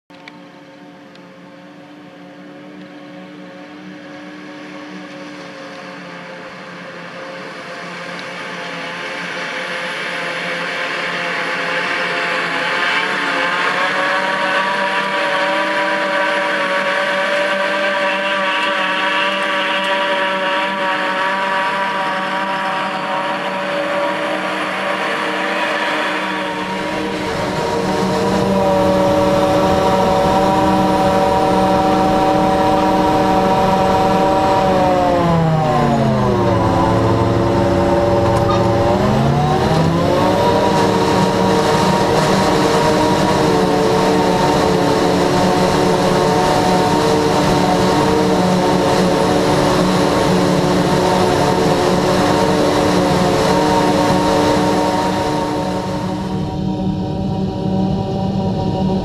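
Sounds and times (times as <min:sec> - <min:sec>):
engine noise: 0:00.1 - 0:59.0
forage harvester machine whine: 0:00.1 - 0:59.0.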